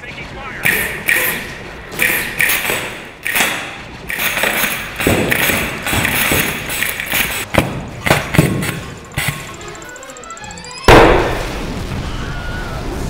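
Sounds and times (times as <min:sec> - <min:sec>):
sharp bangs and thuds: 0:00.6 - 0:09.5.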